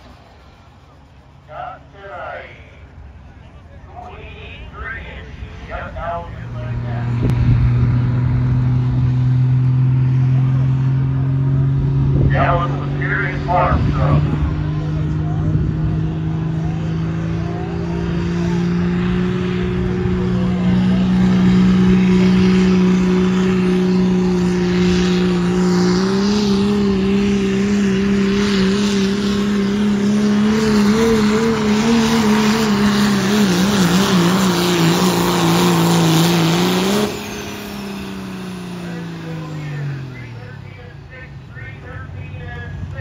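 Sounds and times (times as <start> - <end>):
diesel truck engine under load: 0.0 - 43.0.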